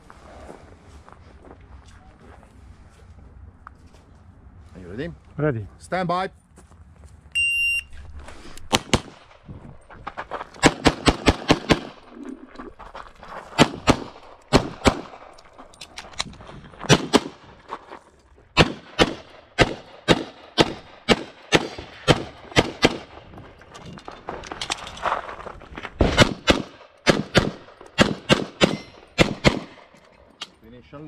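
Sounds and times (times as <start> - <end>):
pistol gunshots: 8.7 - 9.5, 10.6 - 12.2, 13.6 - 15.4, 16.9 - 17.5, 18.6 - 23.3, 26.0 - 30.0.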